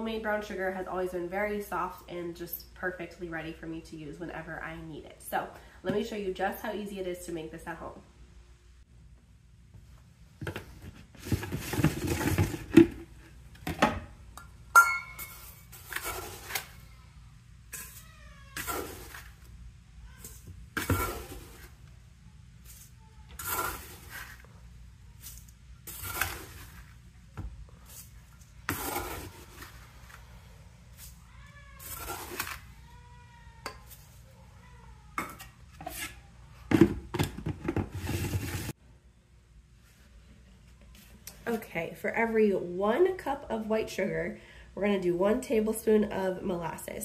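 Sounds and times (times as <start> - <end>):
metal scoop scraping sugar: 15.2 - 16.8, 17.7 - 18.0, 18.6 - 19.5, 20.2 - 21.8, 22.6 - 24.5, 25.2 - 27.0, 27.8 - 30.2, 31.8 - 32.8, 35.4 - 36.2
faint high cries: 16.7 - 19.2, 30.3 - 35.5.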